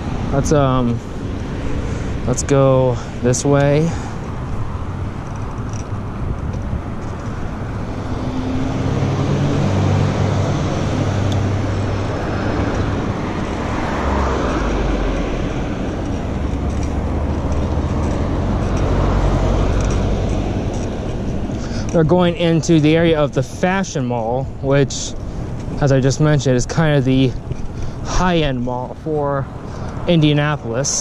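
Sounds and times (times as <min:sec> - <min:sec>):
loud car passing: 0:00.0 - 0:23.3
cars driving past: 0:00.0 - 0:31.0.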